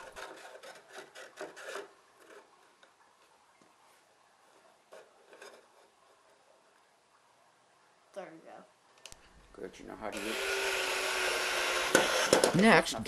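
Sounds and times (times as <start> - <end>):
wooden handle scraping in holes: 0.0 - 2.9, 4.9 - 6.2, 10.1 - 12.6.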